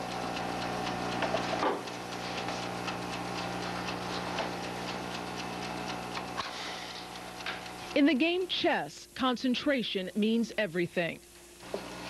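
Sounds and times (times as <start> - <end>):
chess clock ticking: 0.0 - 6.4.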